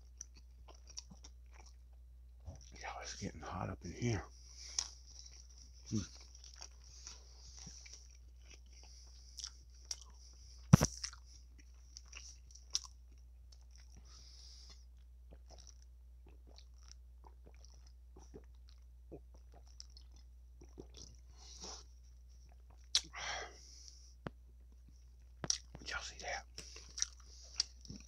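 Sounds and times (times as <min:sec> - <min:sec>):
chewing salad crunches: 0:00.1 - 0:01.8, 0:04.6 - 0:14.0, 0:15.3 - 0:21.2, 0:25.4 - 0:25.9, 0:26.6 - 0:28.0
wet mouth clicks: 0:22.9 - 0:23.2, 0:25.4 - 0:25.9.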